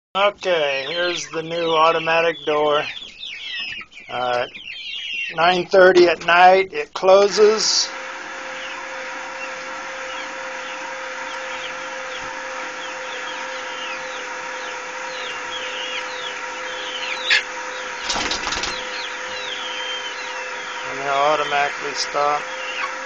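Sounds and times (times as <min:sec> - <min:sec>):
birds chirping: 0:00.2 - 0:23.0
drill motor humming: 0:07.1 - 0:23.0.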